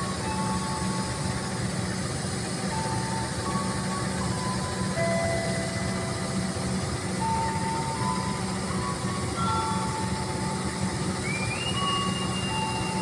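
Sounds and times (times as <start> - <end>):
locomotive engine and wheel rumble: 0.0 - 13.0
thin high tones: 7.2 - 13.0.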